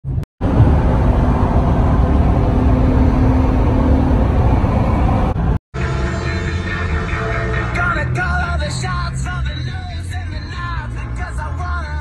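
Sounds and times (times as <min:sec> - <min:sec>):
car road noise: 0:00.0 - 0:11.9.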